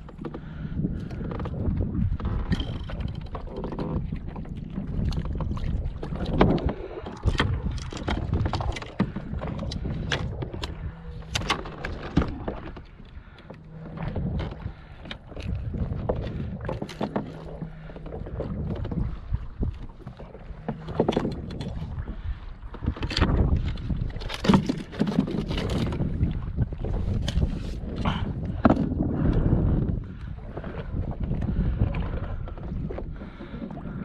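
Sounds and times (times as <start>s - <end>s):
fishing gear clicks and knocks: 0.0s - 4.1s, 6.2s - 21.9s, 22.7s - 26.1s, 27.0s - 29.4s
wind and water against hull: 0.0s - 34.0s.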